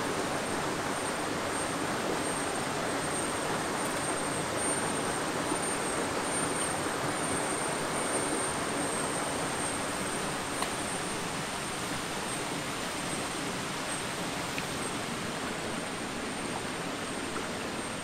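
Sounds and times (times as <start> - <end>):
stream flowing over stones: 0.0 - 18.0.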